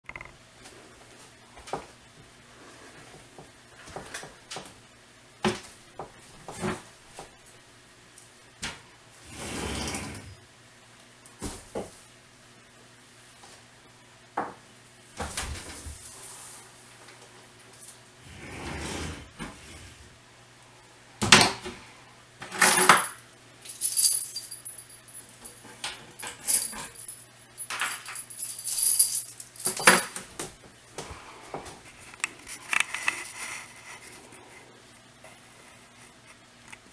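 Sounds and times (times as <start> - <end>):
faint steady hum: 0.1 - 36.9.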